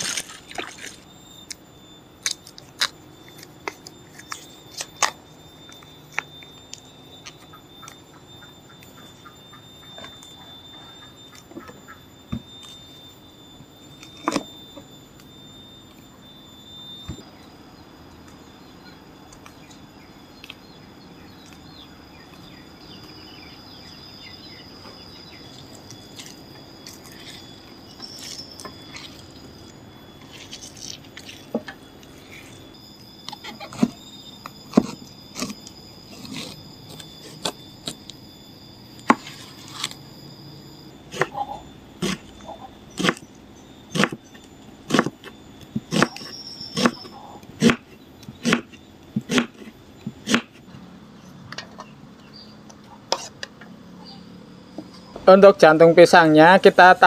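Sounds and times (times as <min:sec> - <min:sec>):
high-pitched insect drone: 0:00.0 - 0:57.0
knife chopping on wooden board: 0:44.9 - 0:45.1, 0:48.4 - 0:50.5.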